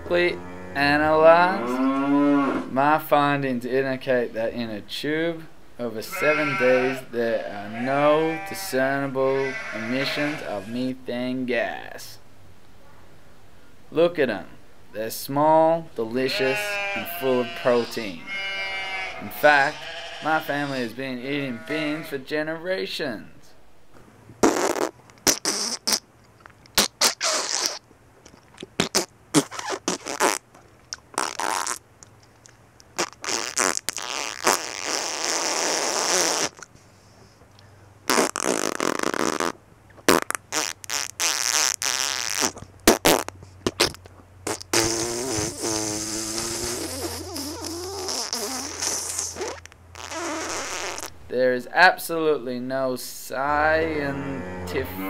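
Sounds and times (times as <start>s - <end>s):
comic fart sounds: 24.4s - 26.1s, 26.7s - 27.8s, 28.6s - 30.5s, 31.1s - 31.8s, 33.0s - 36.7s, 38.1s - 51.2s.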